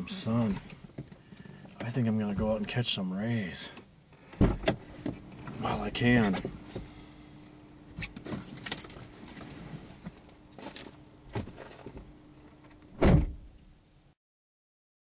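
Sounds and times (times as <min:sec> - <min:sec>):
car door shutting with thump: 0:04.3 - 0:05.2, 0:12.9 - 0:13.6.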